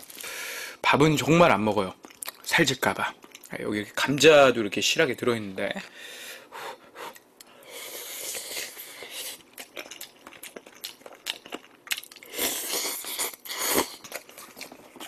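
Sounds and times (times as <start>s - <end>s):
wet chewing: 8.3s - 15.0s.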